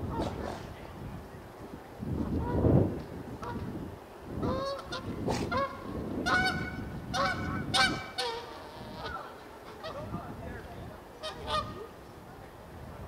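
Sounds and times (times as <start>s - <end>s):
honk-like animal calls: 4.4s - 10.1s.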